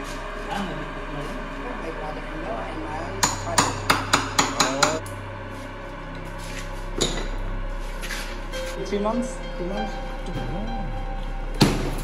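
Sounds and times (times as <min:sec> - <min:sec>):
hammer striking concrete: 0:03.2 - 0:05.0.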